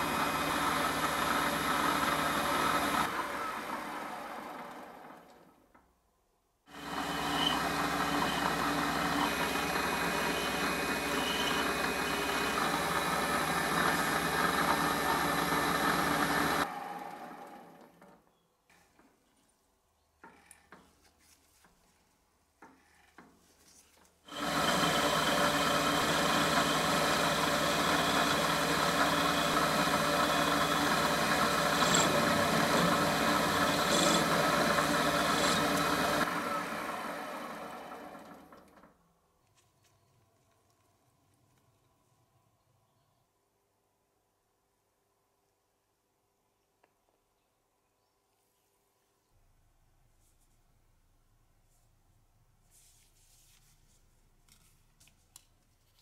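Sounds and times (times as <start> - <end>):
metal lathe cutting steel: 0.0 - 4.0, 6.7 - 16.9, 24.3 - 38.4
faint clicks of hand work: 54.4 - 56.0.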